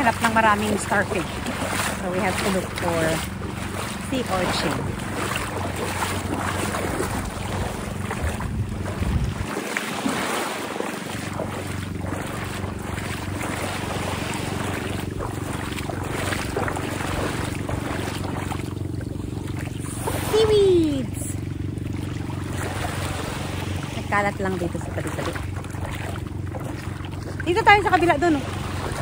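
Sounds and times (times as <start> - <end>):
wind buffeting microphone: 0.0 - 21.3
small waves lapping: 0.0 - 29.0.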